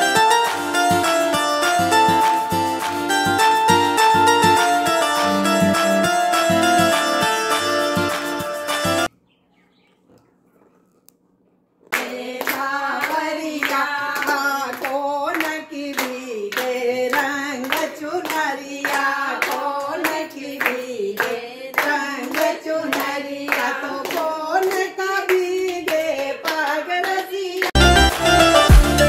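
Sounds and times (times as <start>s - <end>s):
rhythmic hand claps: 0.0s - 9.1s, 11.9s - 29.0s
women singing together: 11.9s - 27.8s.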